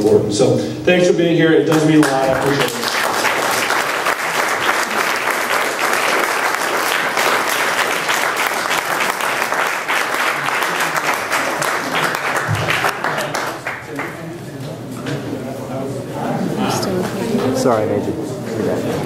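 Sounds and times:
audience applauding: 0:01.7 - 0:14.3.

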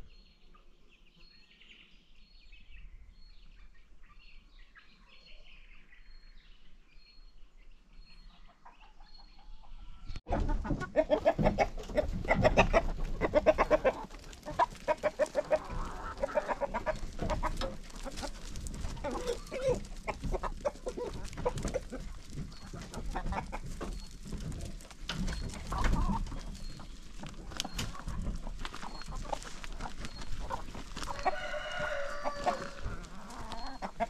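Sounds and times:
chickens clucking: 0:07.9 - 0:34.0.

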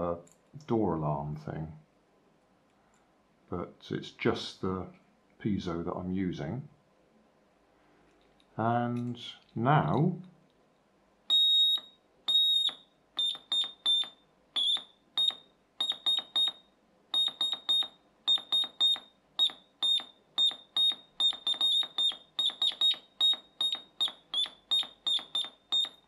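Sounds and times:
piezo morse code beeps: 0:11.3 - 0:16.6, 0:17.2 - 0:26.0.

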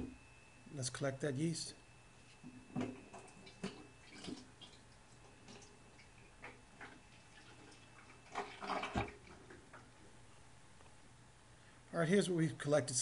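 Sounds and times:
liquid trickling into a jug: 0:03.0 - 0:09.8
small splashes and drips: 0:03.3 - 0:09.9.

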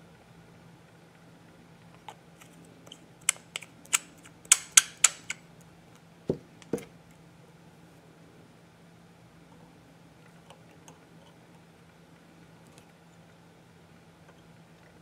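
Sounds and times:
sharp tool clicks: 0:03.2 - 0:05.4.

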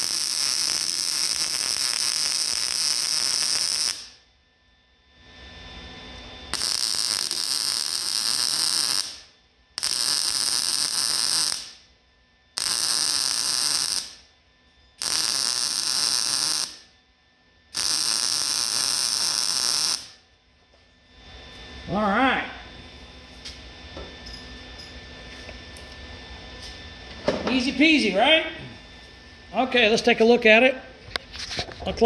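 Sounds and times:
welder arc crackling: 0:00.0 - 0:04.3, 0:06.5 - 0:14.3, 0:15.0 - 0:17.0, 0:17.7 - 0:20.3.

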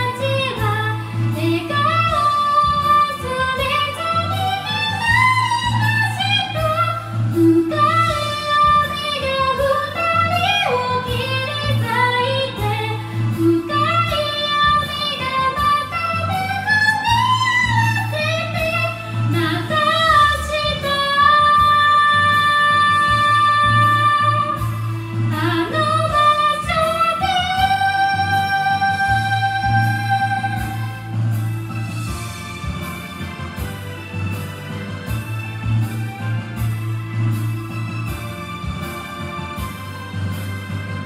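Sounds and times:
woman singing into a microphone: 0:00.0 - 0:31.4
karaoke backing track: 0:00.0 - 0:41.0.

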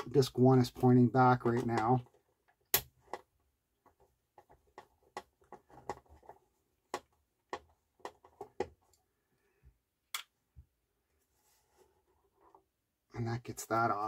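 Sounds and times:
clicks and taps on plastic carousel: 0:01.2 - 0:08.8.

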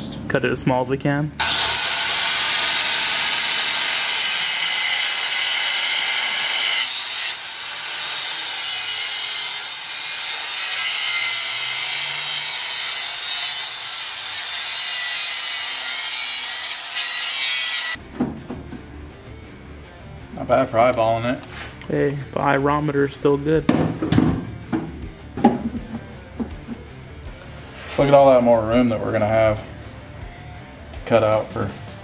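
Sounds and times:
angle grinder cutting steel: 0:01.4 - 0:18.0.

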